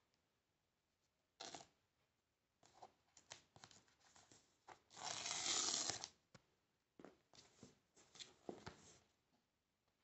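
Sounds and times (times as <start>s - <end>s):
wrap tearing: 5.0s - 6.1s.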